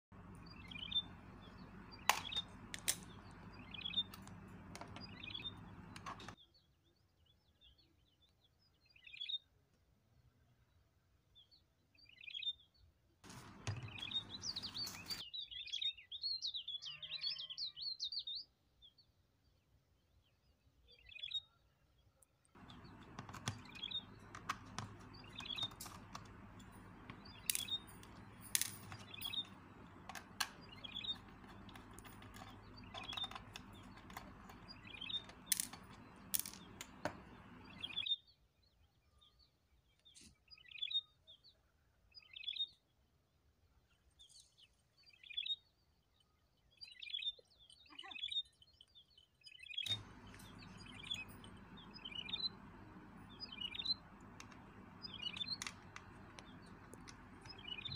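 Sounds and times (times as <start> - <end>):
small birds chirping: 0.1 - 9.5, 11.4 - 42.9, 43.9 - 57.9
screwdriver clicking on screws: 22.6 - 37.9, 49.9 - 57.9
steady low hum: 49.9 - 57.9.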